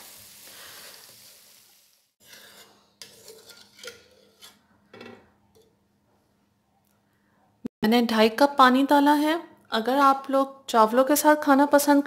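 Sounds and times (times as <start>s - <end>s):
masala sizzling in oil: 0.0s - 4.3s
wooden spoon scraping through gravy: 2.2s - 4.6s.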